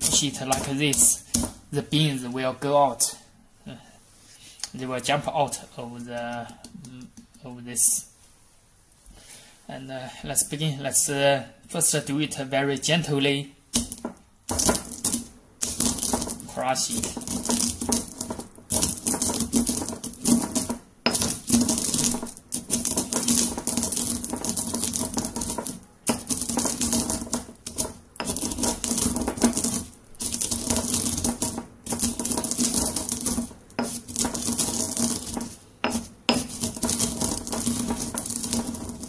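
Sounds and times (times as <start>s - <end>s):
pestle grinding coffee beans: 0.0s - 1.7s, 13.7s - 39.0s.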